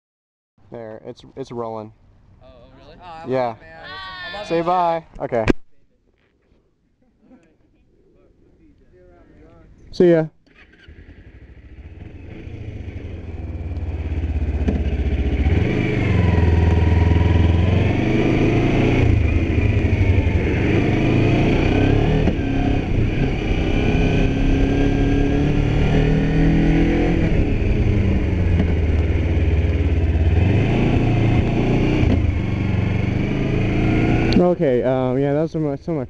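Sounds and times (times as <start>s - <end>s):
motorcycle engine accelerating: 10.4s - 34.8s.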